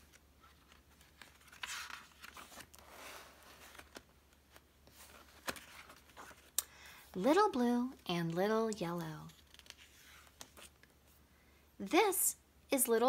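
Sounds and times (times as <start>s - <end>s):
paper pages rustling: 0.0s - 6.6s, 9.2s - 10.9s.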